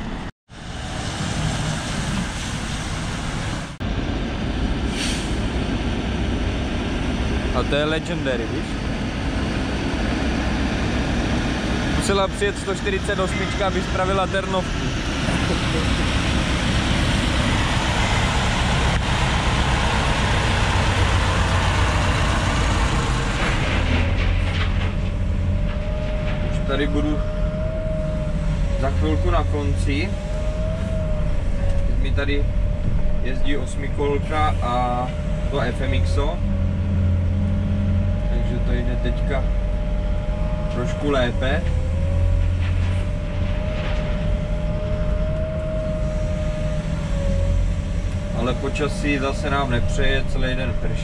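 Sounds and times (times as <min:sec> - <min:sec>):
low engine hum: 0:00.0 - 0:51.0
excavator hiss: 0:04.9 - 0:05.4.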